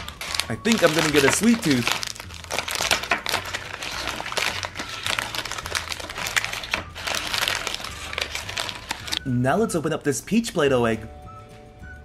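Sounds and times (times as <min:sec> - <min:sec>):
plastic capsule crinkling and clicking: 0:00.0 - 0:09.3.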